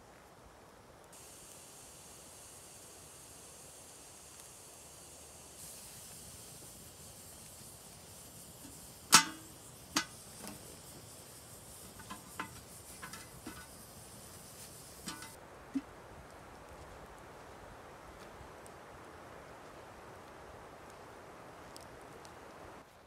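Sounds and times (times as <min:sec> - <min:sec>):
fire hissing: 0:01.1 - 0:15.8
ringing metal clank: 0:09.1 - 0:10.2, 0:15.1 - 0:15.4
light metallic clinks: 0:11.8 - 0:14.0, 0:15.0 - 0:15.4.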